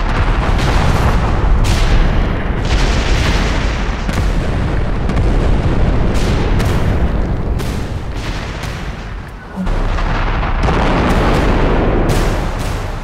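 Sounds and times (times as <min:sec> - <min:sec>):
bomb blasts booming: 0:00.0 - 0:13.0.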